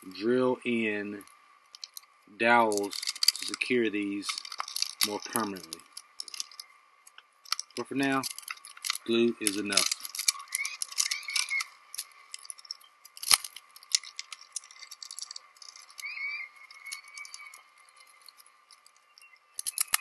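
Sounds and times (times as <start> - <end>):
faint steady whine: 0.0 - 20.0
metal clamps clicking and rattling: 2.7 - 3.6, 4.2 - 6.6, 7.5 - 16.1, 19.6 - 20.0.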